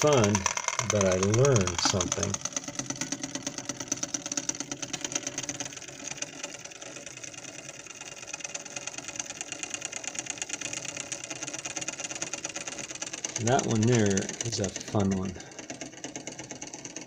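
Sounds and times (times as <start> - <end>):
solenoid engine mechanical clatter: 0.0 - 17.0.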